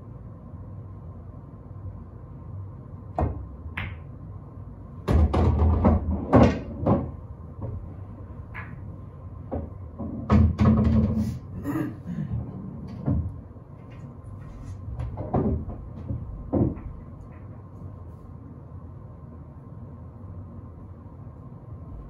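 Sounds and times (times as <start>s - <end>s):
pool balls clicking and knocking: 3.1s - 4.2s, 5.0s - 11.5s, 12.2s - 18.0s.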